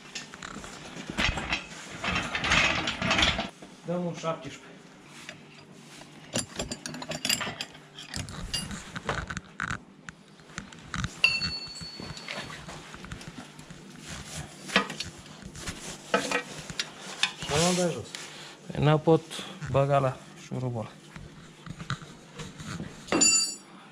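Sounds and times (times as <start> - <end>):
metal wrenches clinking: 6.4 - 8.8
metallic ring: 11.2 - 12.6, 23.1 - 23.7.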